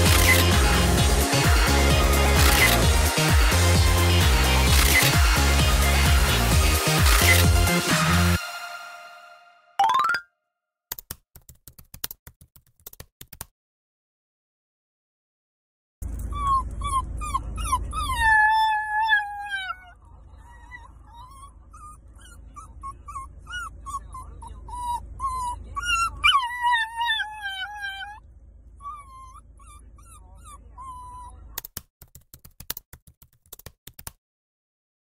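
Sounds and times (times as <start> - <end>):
puppy whining and howling: 16.0 - 28.2, 28.8 - 31.4.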